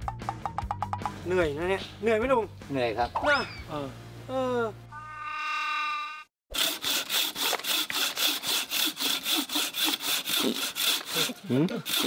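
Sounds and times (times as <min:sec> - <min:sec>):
bow saw cutting wood: 0:06.5 - 0:12.0.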